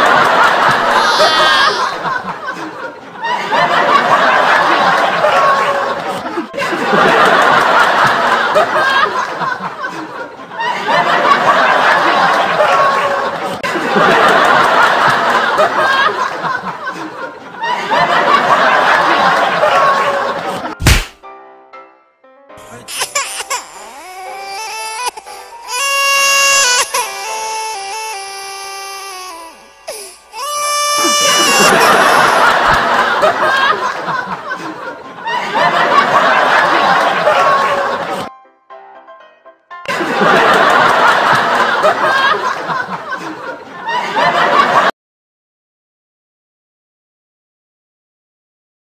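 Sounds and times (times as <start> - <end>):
people laughing: 0.0 - 20.8, 26.6 - 38.3, 39.9 - 44.9
man's voice: 22.6 - 23.0.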